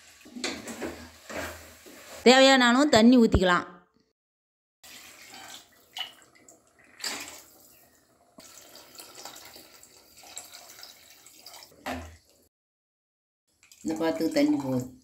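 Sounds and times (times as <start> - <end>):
water pouring into curry: 4.8 - 11.8.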